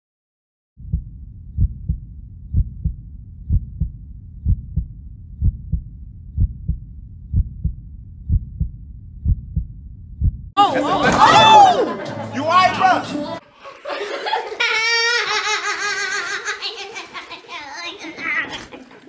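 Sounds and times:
heartbeat double thump: 0.8s - 10.6s
low rumble: 0.8s - 10.6s.

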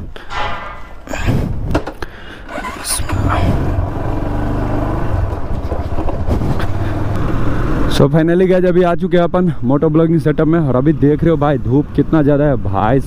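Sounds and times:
motorcycle engine running: 2.5s - 8.0s.

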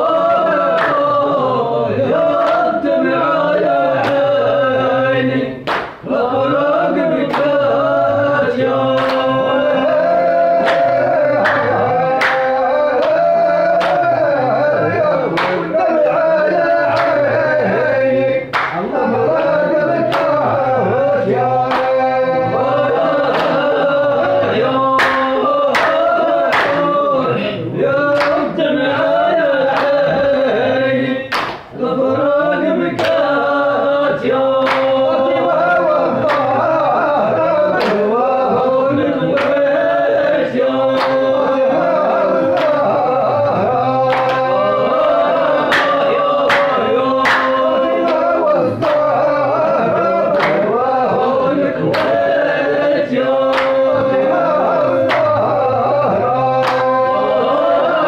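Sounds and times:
men singing in unison: 0.0s - 58.0s
sharp hand claps: 0.6s - 1.2s, 2.3s - 2.8s, 4.0s - 4.4s, 5.6s - 6.1s, 7.2s - 7.7s, 8.7s - 9.5s, 10.1s - 14.4s, 15.3s - 15.8s, 16.9s - 17.3s, 18.5s - 20.6s, 21.4s - 24.0s, 24.7s - 27.0s, 28.1s - 28.6s, 29.7s - 30.2s, 31.3s - 31.8s, 33.0s - 33.4s, 34.4s - 35.1s, 36.2s - 36.6s, 37.8s - 38.1s, 39.3s - 39.8s, 40.8s - 41.5s, 42.5s - 43.1s, 43.8s - 49.6s, 50.3s - 52.5s, 53.4s - 54.2s, 54.9s - 57.2s.

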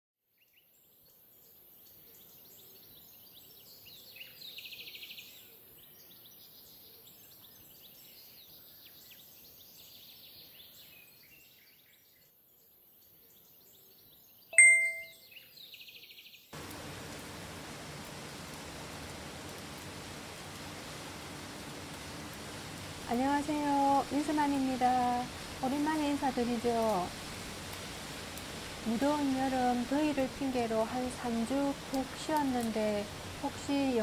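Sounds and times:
small birds chirping: 0.4s - 16.5s
bright chime: 14.6s - 15.2s
hiss of rain: 16.6s - 34.0s.

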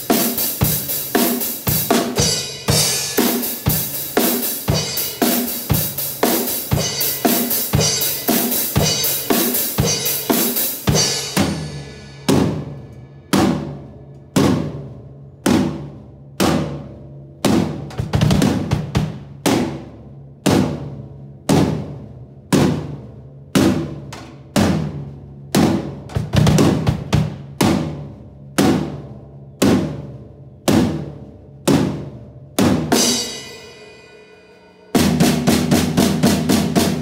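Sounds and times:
drum kit played hard: 0.0s - 37.0s
crash cymbals: 6.8s - 14.0s.

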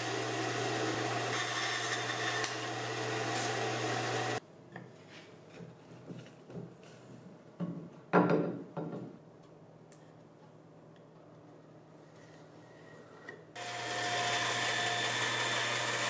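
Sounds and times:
band saw cutting wood: 0.0s - 4.4s, 13.6s - 16.0s.

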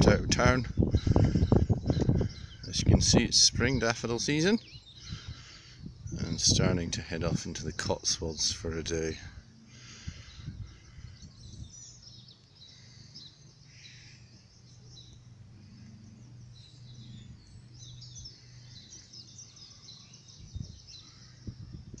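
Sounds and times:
low steady hum: 0.0s - 22.0s
small birds chirping: 0.0s - 22.0s.

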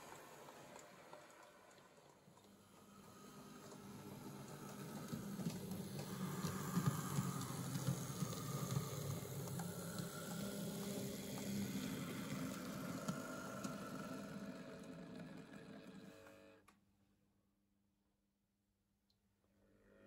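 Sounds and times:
model train motor whining: 0.0s - 16.6s
model train rumbling over track: 2.6s - 16.0s.

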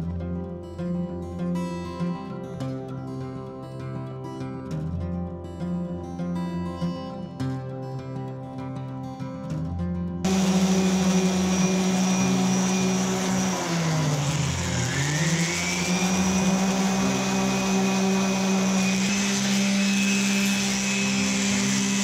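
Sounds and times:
orbital sander sanding wood: 10.3s - 22.0s.

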